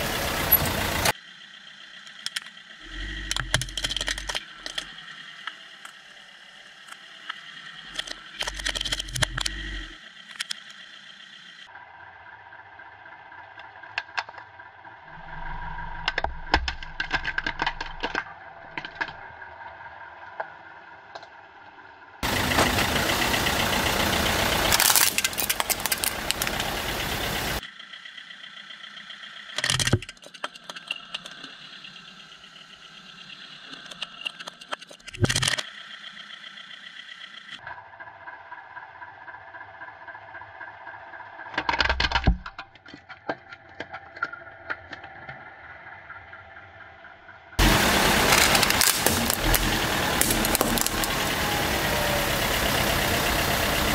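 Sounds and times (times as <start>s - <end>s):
plastic cracking under car tyre: 16.5s - 19.2s, 24.7s - 26.6s, 48.2s - 51.2s
loud steady noise: 22.2s - 29.4s, 46.6s - 53.9s.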